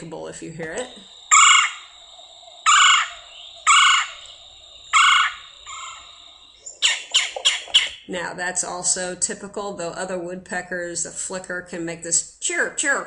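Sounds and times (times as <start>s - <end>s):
woodpecker calling: 0.7s - 8.1s.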